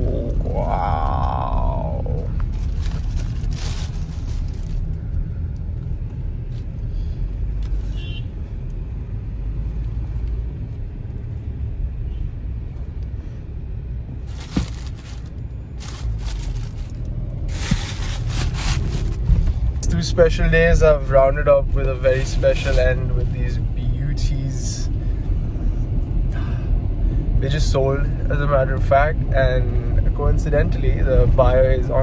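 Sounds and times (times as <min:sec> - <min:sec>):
car cabin rumble: 0:12.6 - 0:23.2
handling rustles and knocks: 0:14.2 - 0:19.6.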